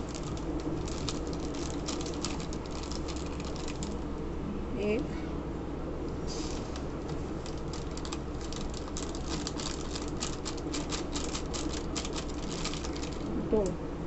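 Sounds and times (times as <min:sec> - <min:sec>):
plastic packet crinkling: 0:00.0 - 0:04.0, 0:07.0 - 0:13.3
steady low hum: 0:00.0 - 0:14.0.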